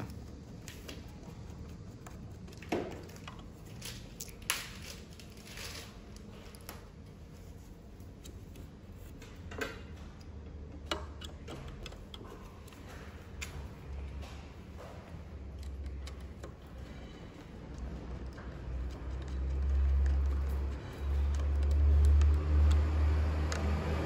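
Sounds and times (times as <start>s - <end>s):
screwdriver clicking and scraping: 15.4s - 22.9s.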